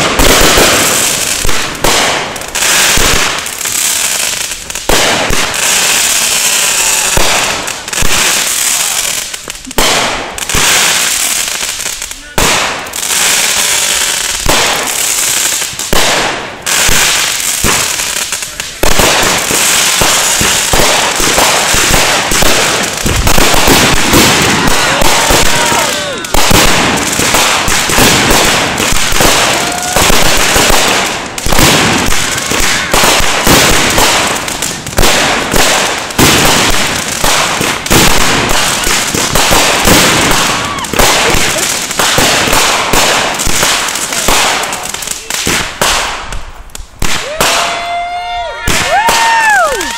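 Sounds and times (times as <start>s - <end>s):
fireworks crackling and popping: 0.0s - 49.9s.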